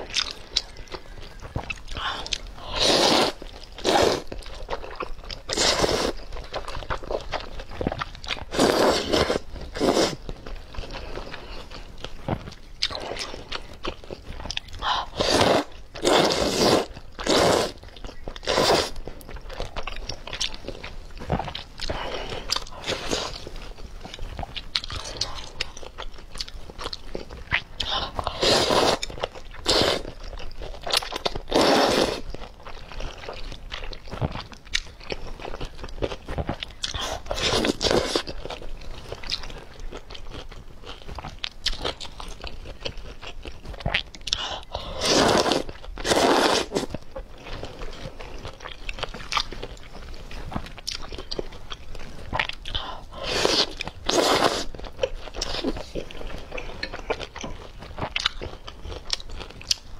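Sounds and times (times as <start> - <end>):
chewing and mouth noises: 0.0 - 59.9
slurping noodles: 2.0 - 4.4, 5.5 - 6.2, 8.5 - 10.3, 14.8 - 17.8, 18.4 - 19.0, 27.8 - 30.2, 31.4 - 32.3, 36.8 - 38.3, 44.3 - 47.0, 52.8 - 55.9.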